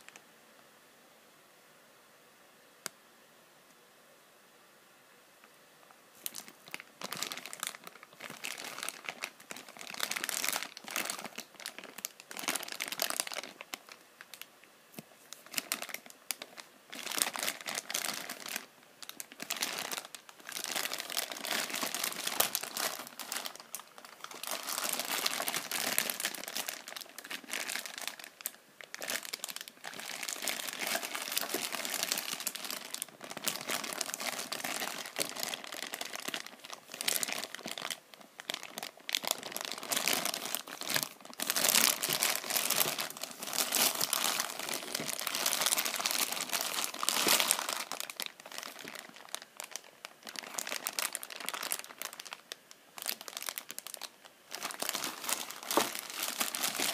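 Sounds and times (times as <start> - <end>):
plastic bag crinkling: 6.2 - 14.5, 15.3 - 56.9.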